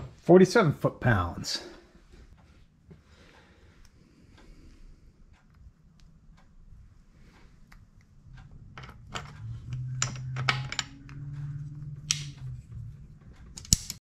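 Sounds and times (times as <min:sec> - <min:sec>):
low steady hum: 0:00.0 - 0:14.0
metal tools clinking on bench: 0:08.8 - 0:11.6.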